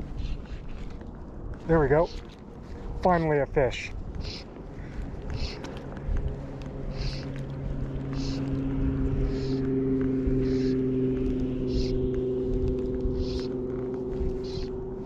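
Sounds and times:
motorboat engine hum: 4.0s - 15.0s.

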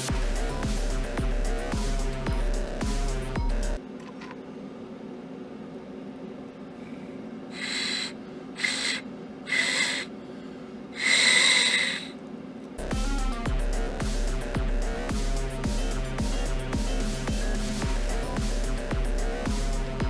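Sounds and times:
whistle shrieking: 7.6s - 10.1s, 11.0s - 12.2s.

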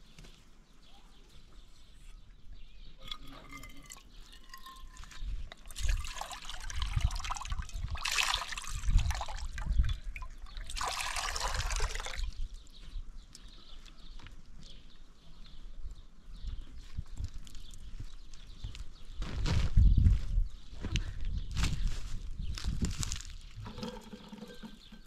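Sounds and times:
liquid pouring: 3.0s - 12.4s, 23.6s - 25.0s.

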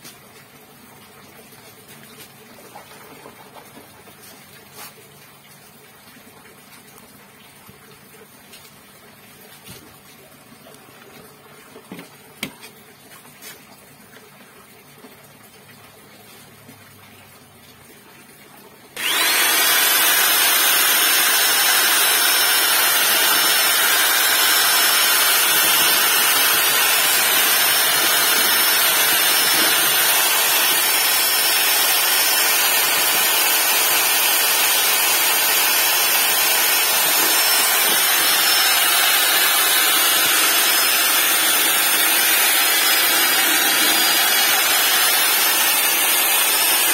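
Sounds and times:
electric drill mixing liquid: 19.0s - 46.9s.

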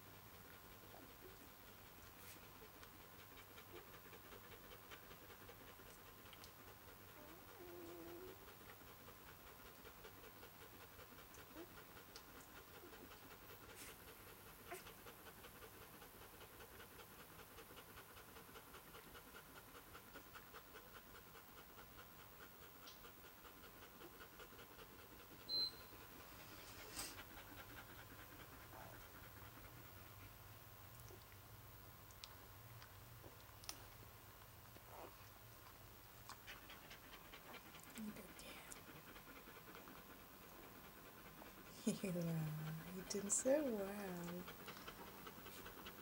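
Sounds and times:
dog panting: 0.0s - 46.0s.

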